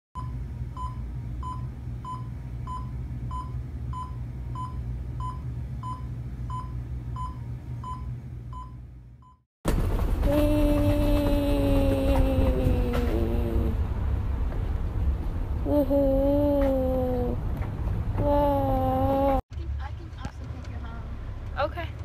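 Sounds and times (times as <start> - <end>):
monitor pulse beeps: 0.2 - 9.4
steady low hum: 0.2 - 19.4
steady rumble with falling tone: 9.9 - 19.4.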